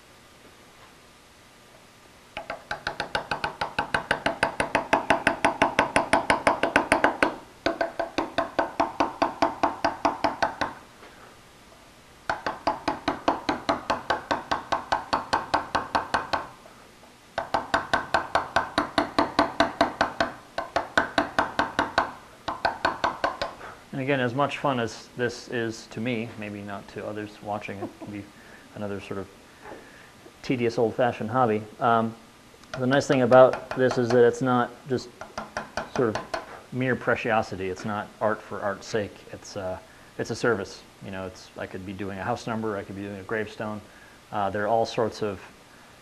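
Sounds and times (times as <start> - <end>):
hammer tapping chisel into slate: 2.4 - 10.8, 12.3 - 16.5, 17.4 - 23.6, 32.7 - 34.4, 35.2 - 36.5.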